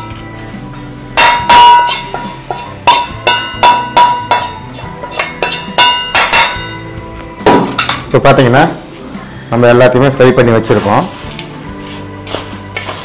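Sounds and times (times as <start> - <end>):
steel pan knocking on steel plate: 1.2 - 6.8.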